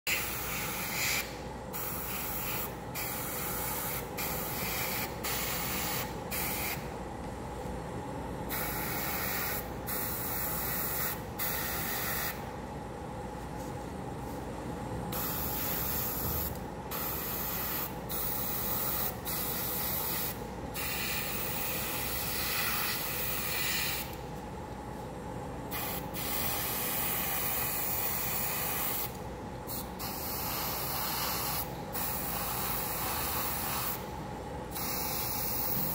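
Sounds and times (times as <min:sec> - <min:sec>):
airbrush spraying hiss: 0:00.1 - 0:06.8, 0:15.2 - 0:24.1, 0:25.7 - 0:29.1, 0:29.7 - 0:34.0, 0:34.7 - 0:35.9
steady low hum: 0:00.1 - 0:35.9.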